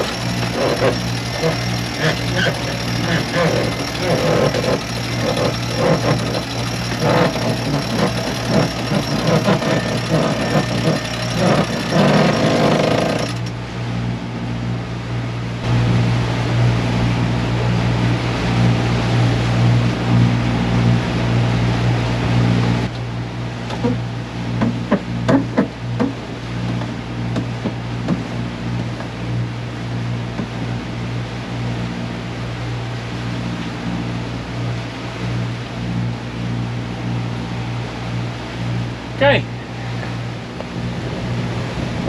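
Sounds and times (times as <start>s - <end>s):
loud irregular rattling: 0.0s - 13.5s
boat diesel engines humming: 0.0s - 42.0s.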